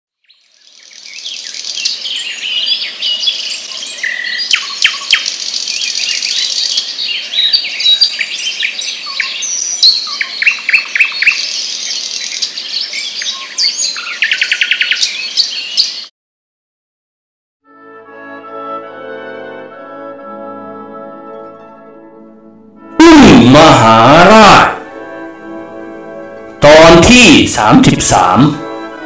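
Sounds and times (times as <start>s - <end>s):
birds chirping and singing: 0.2s - 16.1s.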